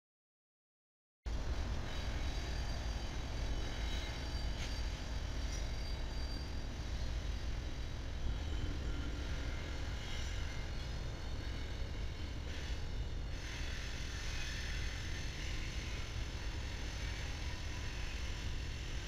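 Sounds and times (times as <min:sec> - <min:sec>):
hiss: 0:12.5 - 0:19.0.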